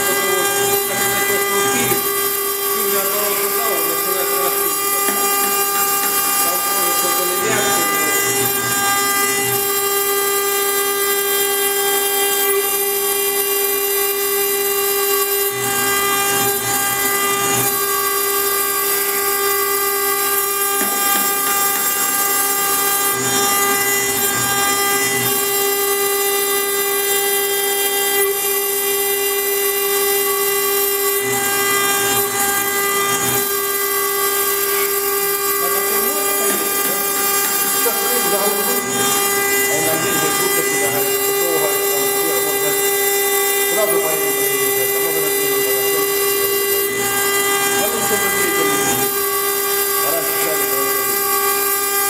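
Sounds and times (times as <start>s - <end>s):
router spindle milling stone: 0.0s - 52.0s.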